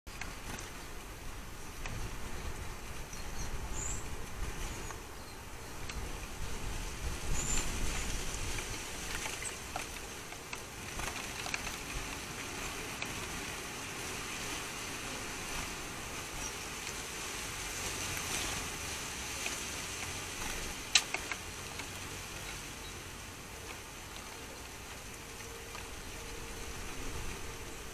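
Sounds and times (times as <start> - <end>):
outdoor background hiss: 0.1 - 27.9
faint ticks: 19.3 - 23.0.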